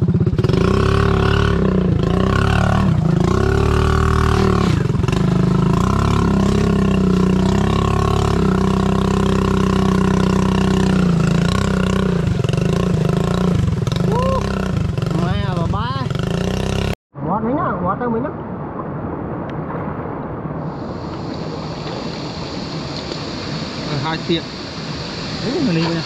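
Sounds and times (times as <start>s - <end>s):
vehicle engine revving: 0.0s - 17.0s.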